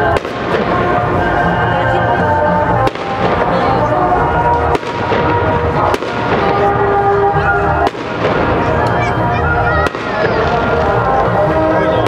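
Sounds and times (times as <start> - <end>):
background music: 0.0 - 12.0
background voices: 0.8 - 4.7, 8.4 - 12.0.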